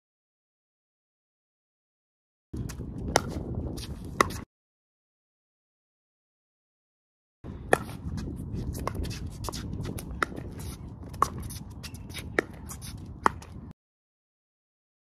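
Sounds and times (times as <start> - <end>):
shoes scuffing on hard court: 2.6 - 4.4, 7.7 - 13.6.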